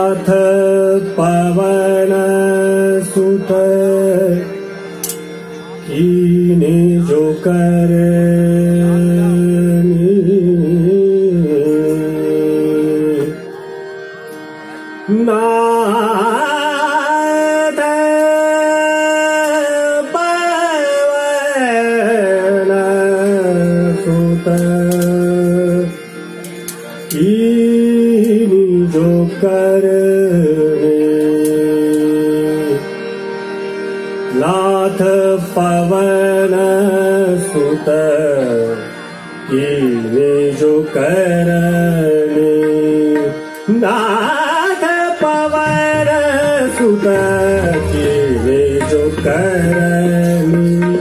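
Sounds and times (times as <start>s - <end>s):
harmonium: 0.0s - 51.0s
man singing held notes: 39.5s - 51.0s.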